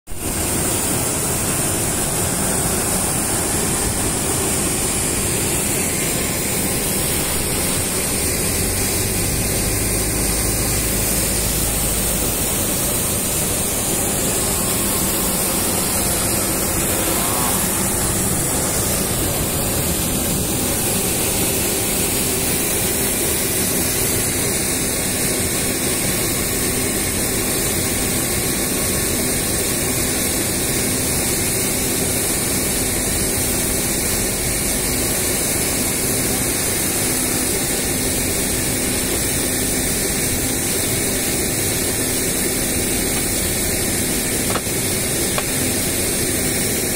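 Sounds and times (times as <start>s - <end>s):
loud rushing noise: 0.1s - 25.3s.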